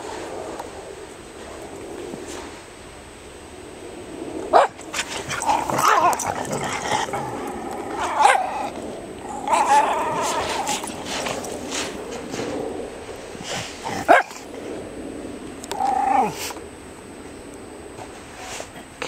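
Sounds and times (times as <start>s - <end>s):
dogs growling: 4.4s - 14.8s, 15.6s - 16.6s
dogs barking: 4.5s - 12.0s, 13.6s - 14.5s.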